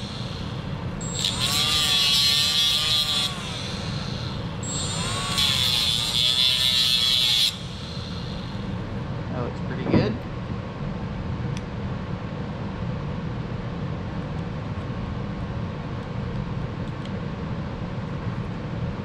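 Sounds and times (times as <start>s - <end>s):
die grinder whining: 0.0s - 8.9s.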